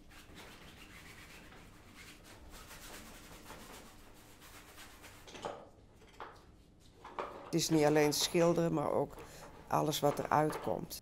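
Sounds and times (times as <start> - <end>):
paintbrush scrubbing canvas: 0.0 - 5.4
brushes clattering in plastic bucket: 5.3 - 11.0.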